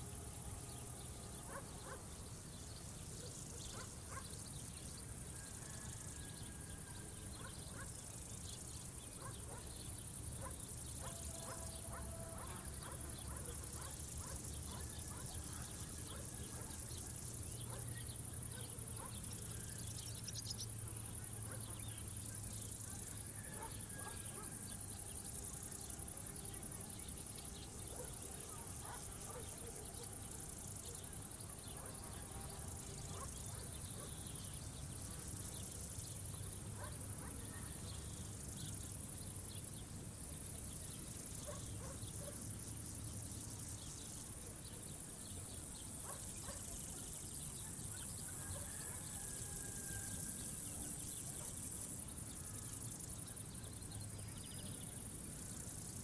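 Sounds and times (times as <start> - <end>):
insect trill: 0.0 - 56.0
loud high-pitched insect sound: 40.5 - 56.0.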